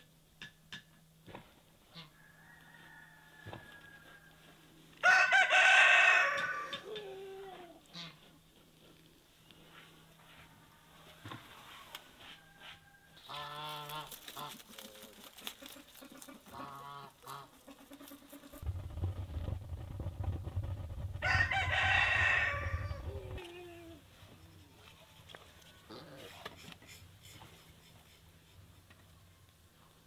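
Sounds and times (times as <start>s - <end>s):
rooster crowing: 2.1s - 4.4s, 5.0s - 7.0s, 12.2s - 13.6s, 21.2s - 23.8s
low rumble: 18.6s - 23.9s
chickens calling: 21.2s - 23.9s.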